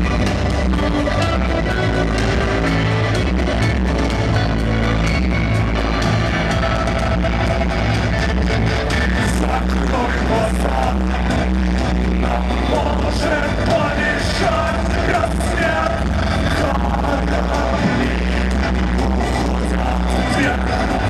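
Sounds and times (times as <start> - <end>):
electronic rock band playing: 0.0 - 21.0
man singing lead vocals: 8.4 - 21.0.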